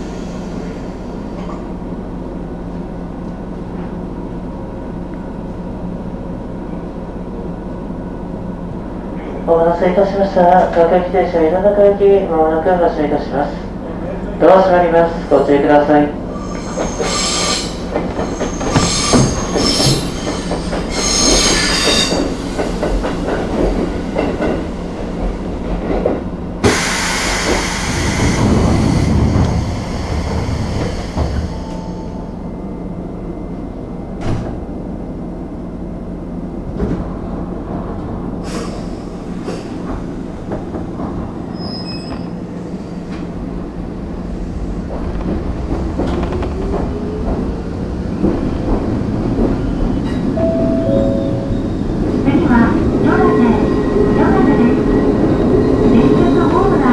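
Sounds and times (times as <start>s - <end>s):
train wheel squeal: 16.3s - 22.9s, 30.0s - 32.4s, 41.4s - 42.5s
standing train humming: 42.3s - 56.9s.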